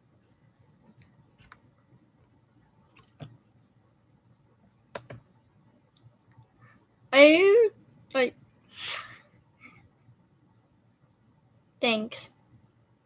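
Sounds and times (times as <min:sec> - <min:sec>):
faint clicks and taps: 0:00.2 - 0:03.4, 0:04.9 - 0:05.3.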